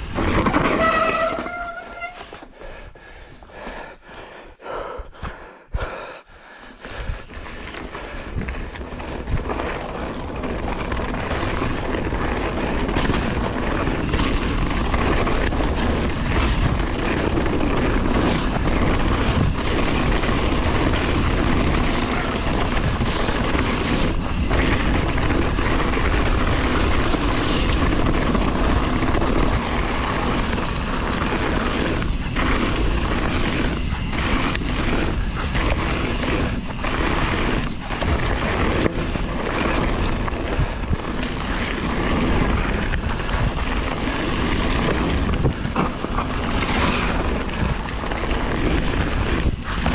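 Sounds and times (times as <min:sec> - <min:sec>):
bike tyres rolling on stony trail: 0:00.0 - 0:49.9.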